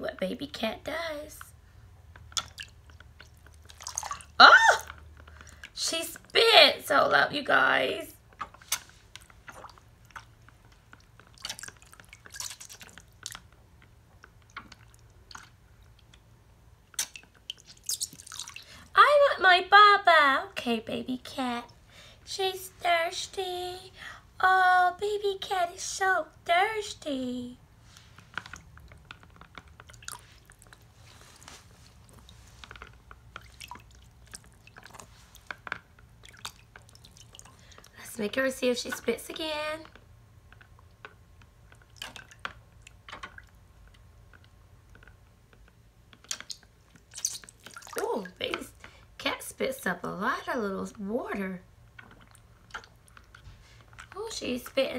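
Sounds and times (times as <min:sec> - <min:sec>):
water splashes and drips: 0:02.1 - 0:06.3, 0:08.3 - 0:19.0, 0:28.0 - 0:49.0, 0:51.9 - 0:54.8.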